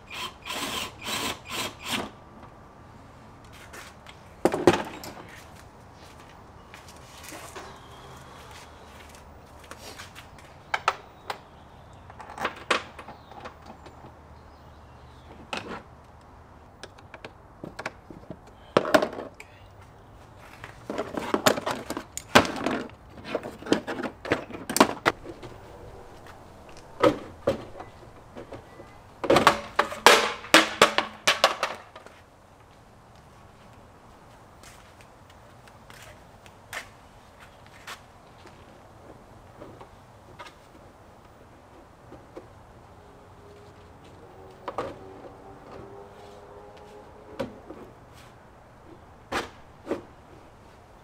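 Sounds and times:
hand tools clicking and clunking: 3.6s - 14.2s, 20.5s - 32.2s.

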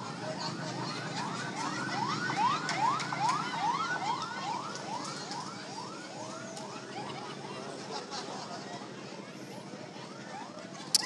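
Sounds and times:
ambulance siren yelping: 0.6s - 7.9s, 9.6s - 11.0s.

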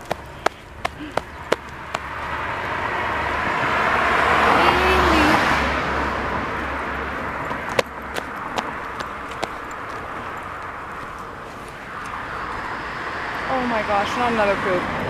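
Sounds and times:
footsteps on pavement: 0.0s - 2.7s, 6.5s - 12.7s
car passing by: 0.0s - 15.0s.

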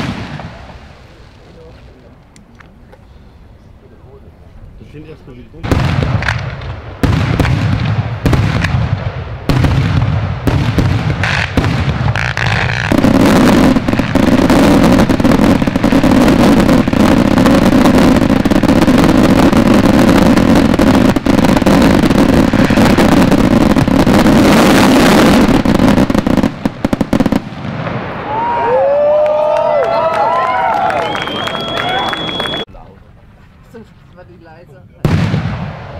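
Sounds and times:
fireworks barrage crackling: 0.0s - 3.5s, 4.8s - 32.7s, 35.0s - 35.9s
aerial firework bangs: 5.6s - 28.5s.

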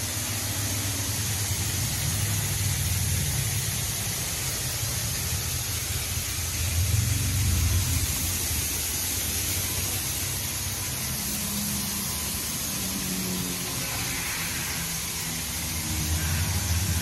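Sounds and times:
car wash spraying water: 0.0s - 17.0s
low rumble: 1.1s - 12.6s.

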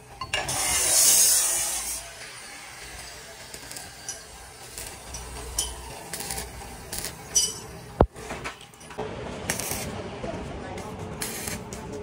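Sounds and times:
crackling welding arc bursts: 0.5s - 8.0s, 9.5s - 10.0s, 11.2s - 11.7s.

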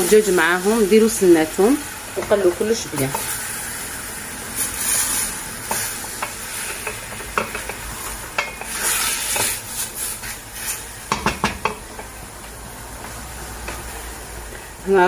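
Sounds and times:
food sizzling in oil: 0.0s - 15.0s
wooden spoon stirring food: 5.6s - 14.6s
spoon knocking against pot: 6.2s - 7.8s, 11.1s - 12.2s.

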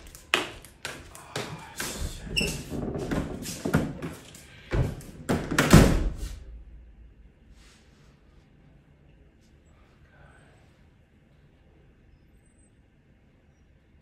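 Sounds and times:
door knocks and scrapes: 2.0s - 6.2s
door banging shut: 4.7s - 6.2s.

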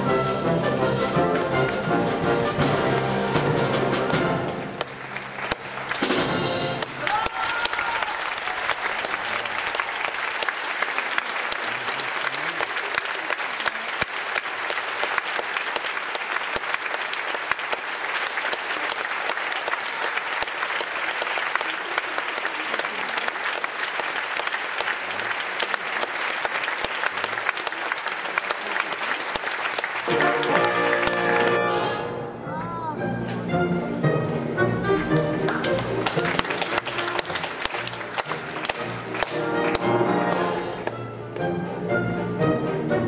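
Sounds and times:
music: 0.0s - 7.2s, 30.0s - 43.0s
audience applauding: 1.2s - 32.0s, 35.1s - 41.5s.

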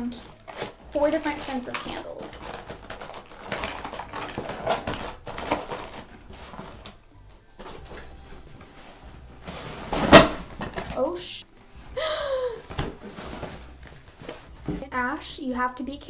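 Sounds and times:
packaging being handled: 0.0s - 11.0s.

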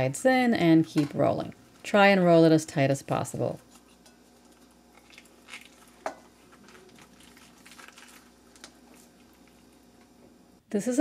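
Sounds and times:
soft squishing and rustling: 3.5s - 10.4s.

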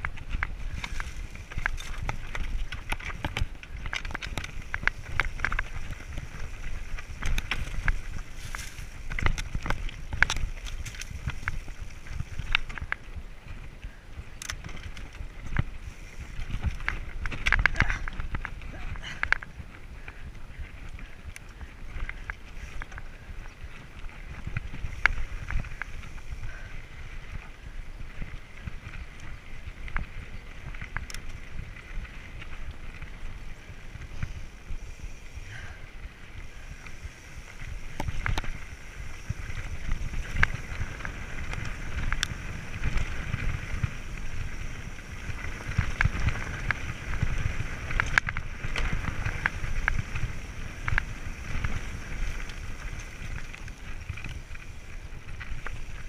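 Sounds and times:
bike tyres on dirt trail: 0.0s - 56.0s
clicks and rattles of bike: 0.0s - 56.0s
wind buffeting microphone: 0.0s - 56.0s.

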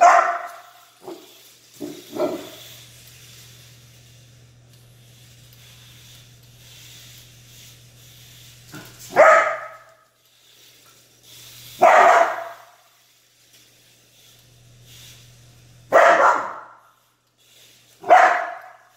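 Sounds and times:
dog barking: 0.0s - 1.3s, 1.9s - 2.6s, 9.1s - 9.9s, 11.8s - 12.8s, 15.9s - 16.8s, 18.0s - 18.9s.

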